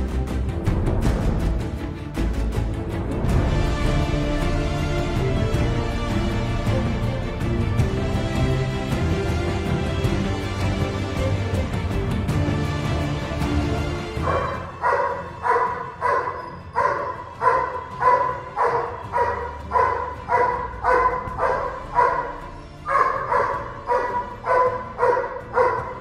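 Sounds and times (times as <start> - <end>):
background music: 0.0 - 26.0
dog barking: 14.2 - 26.0.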